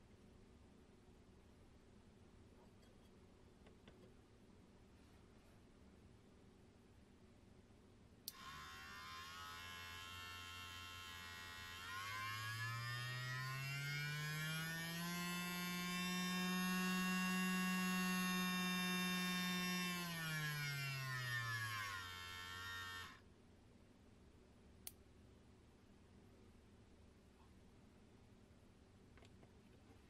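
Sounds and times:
small electric motor whirring: 0:08.3 - 0:23.2.

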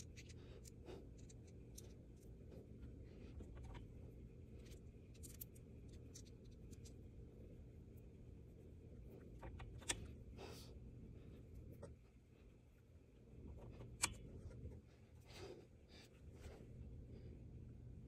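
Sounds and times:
low steady hum: 0:00.0 - 0:18.0.

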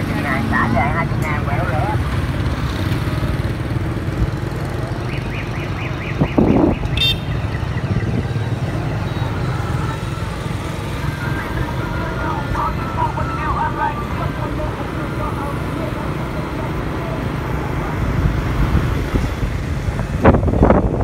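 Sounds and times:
motorbike engine rumble: 0:00.0 - 0:21.0
motorbikes passing: 0:00.0 - 0:21.0
wind of the ride: 0:06.1 - 0:21.0.

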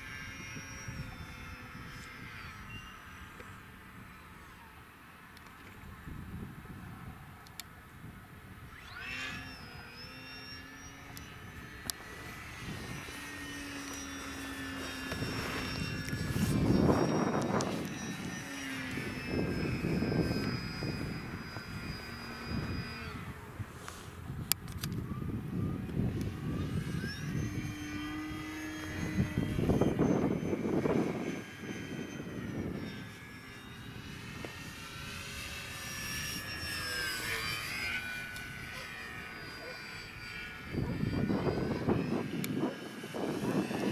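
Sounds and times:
wind on microphone: 0:00.0 - 0:04.2, 0:05.8 - 0:43.9
model airplane motor whining: 0:00.0 - 0:43.9.

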